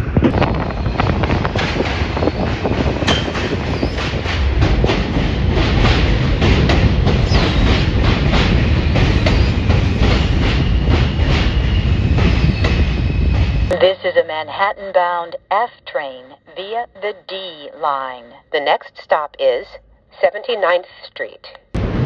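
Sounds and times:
train wheels clattering over rail joints: 0.3 - 13.0.

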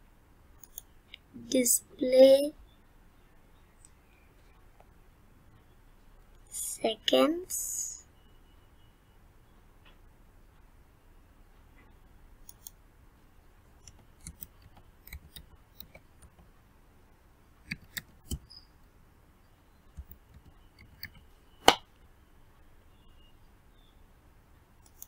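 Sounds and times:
keyboard typing clicks: 0.6 - 1.3, 12.4 - 12.8, 13.8 - 16.5, 17.6 - 18.6.

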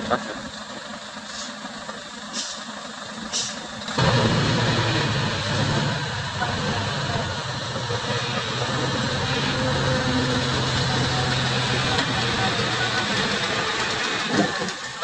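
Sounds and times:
truck diesel engine idling low: 3.4 - 14.2.

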